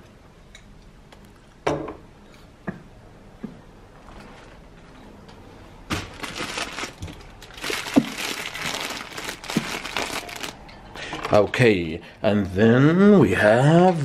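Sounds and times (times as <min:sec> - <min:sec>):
plastic bag crinkling: 0:05.9 - 0:10.6.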